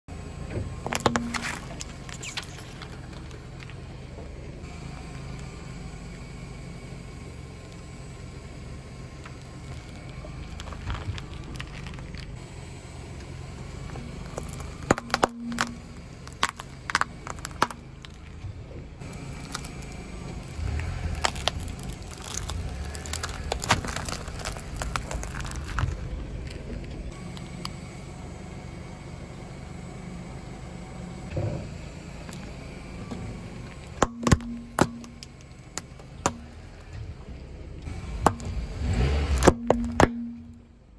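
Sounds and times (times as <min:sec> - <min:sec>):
car low rumble: 0:00.0 - 0:40.9
tyre crushing small objects: 0:00.8 - 0:03.8, 0:09.3 - 0:12.4, 0:13.8 - 0:18.4, 0:19.0 - 0:27.0, 0:33.8 - 0:36.9, 0:38.1 - 0:40.6.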